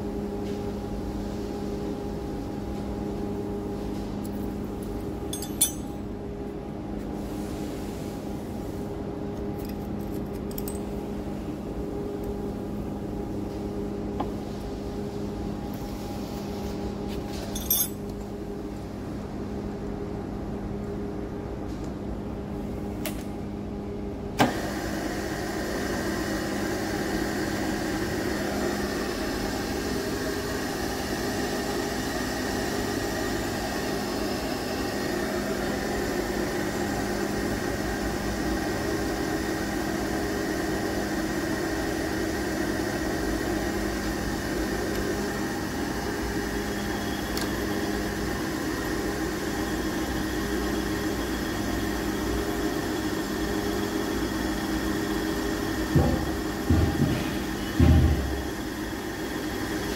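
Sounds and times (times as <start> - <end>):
milling machine humming: 24.5 - 59.9.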